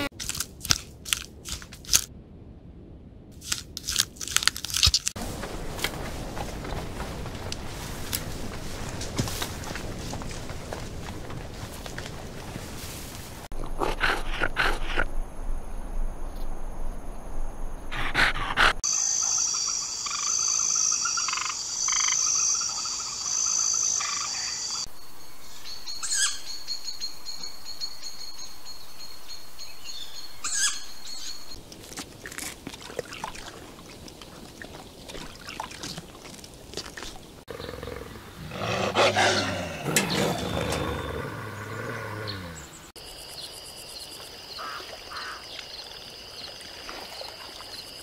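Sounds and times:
wolves snarling: 13.6 - 15.1, 37.5 - 42.8.

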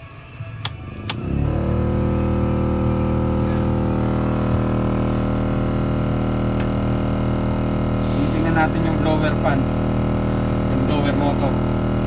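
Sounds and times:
blower motor droning: 0.0 - 12.0.

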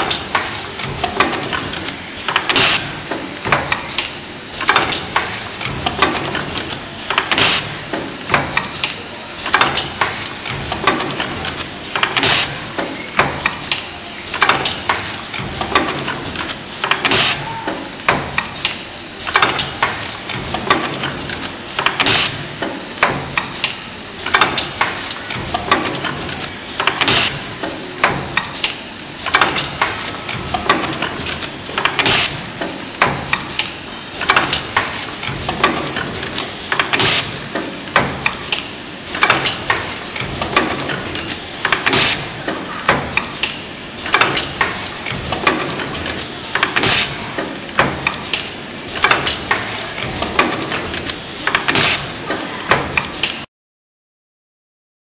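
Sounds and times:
machine mechanical noise: 0.0 - 53.5
sharp machine knocks: 16.8 - 21.1, 21.8 - 26.2, 26.8 - 53.4.

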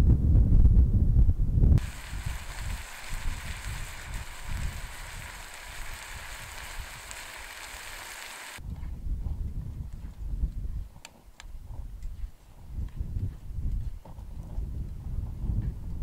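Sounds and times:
wind rumbling on microphone: 0.0 - 16.0
food sizzling in a frying pan: 1.8 - 8.6.

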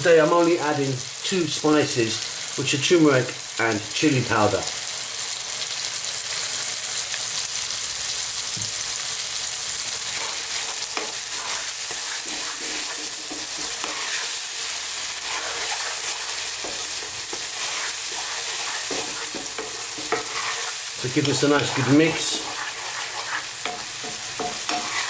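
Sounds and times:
masala sizzling in oil: 0.0 - 25.0
spatula scraping and stirring: 9.8 - 25.0.

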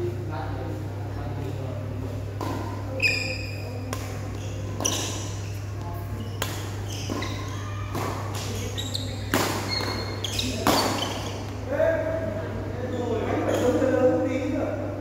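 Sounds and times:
racket hitting shuttlecock: 2.4 - 2.8, 3.9 - 5.4, 6.4 - 11.6.

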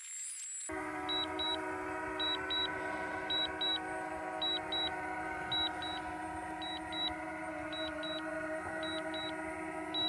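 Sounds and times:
drone propellers humming: 0.7 - 10.0
remote controller alert beeping: 2.2 - 6.0, 6.6 - 8.2.

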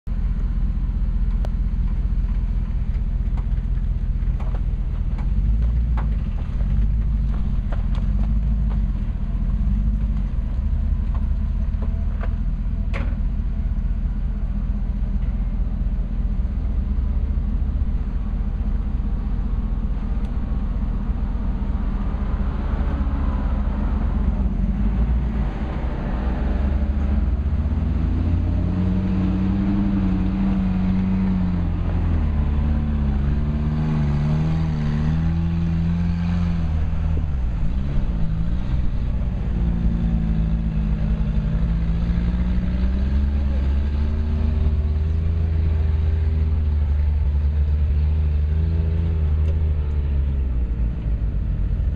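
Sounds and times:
truck engine rumbling: 0.0 - 51.9.

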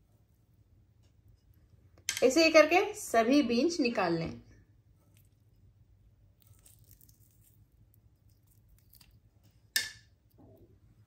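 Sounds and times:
soft fruit squishing and tearing: 5.0 - 9.6.

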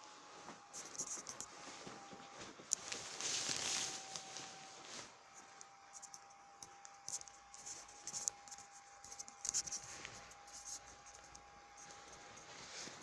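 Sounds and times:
plastic poncho rustling: 1.6 - 5.1.

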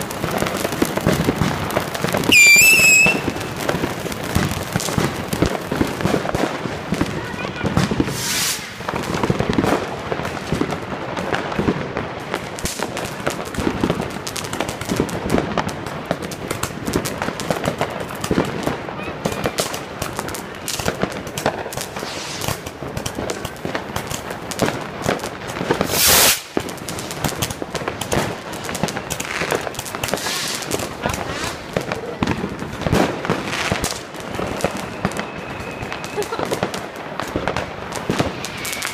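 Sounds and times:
loud firework burst: 0.0 - 12.0, 25.6 - 38.9
fireworks crackling and popping: 0.0 - 38.9.

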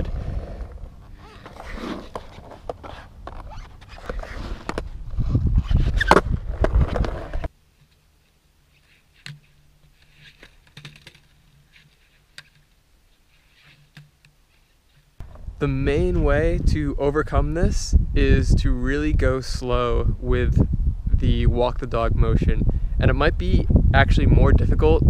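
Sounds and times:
skateboard wheels rolling on concrete: 0.0 - 16.6
low hum: 15.2 - 18.4.

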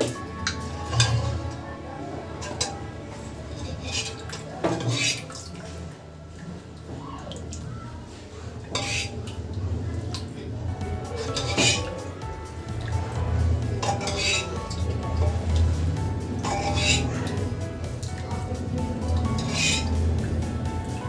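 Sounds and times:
ladle scraping metal pot: 0.0 - 1.7, 2.4 - 5.4, 8.6 - 9.4, 11.0 - 12.2, 12.9 - 18.2, 19.1 - 20.0.

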